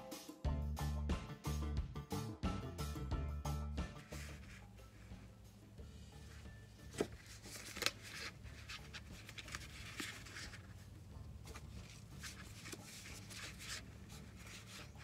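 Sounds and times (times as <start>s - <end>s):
paper pouches rustling: 6.2s - 15.0s.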